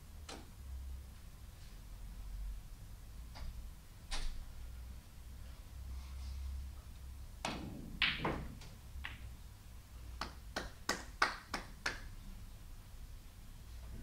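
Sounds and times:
snooker balls clicking: 7.4s - 9.4s
cue striking ball: 7.5s - 9.3s.

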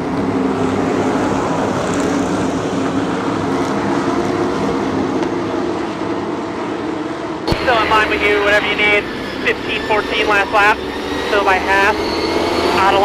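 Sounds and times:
vehicle engine running: 7.5s - 13.0s.

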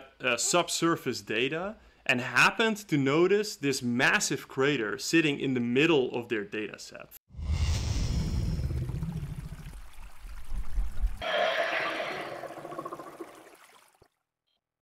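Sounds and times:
low rumble: 7.4s - 11.2s
water pouring and gushing: 7.7s - 14.2s.

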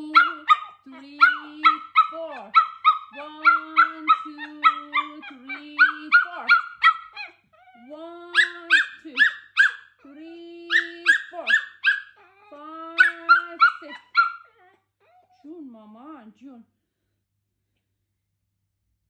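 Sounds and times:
dog whining: 0.1s - 10.0s, 10.7s - 15.4s
dog yapping: 0.1s - 10.0s, 10.7s - 15.4s.

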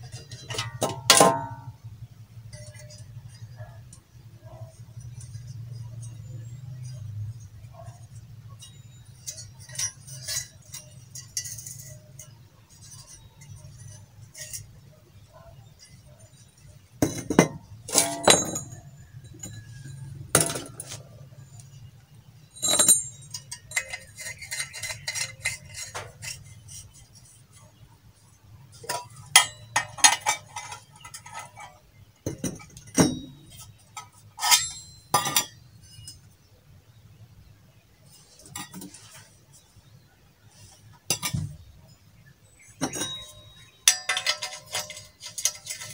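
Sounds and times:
metal parts clinking: 0.0s - 1.8s, 2.5s - 27.8s, 28.7s - 36.4s, 38.1s - 39.7s, 41.0s - 41.6s, 42.6s - 45.9s
sharp ringing metal knocks: 17.0s - 21.0s, 32.2s - 33.7s, 34.4s - 36.2s, 42.8s - 45.9s.

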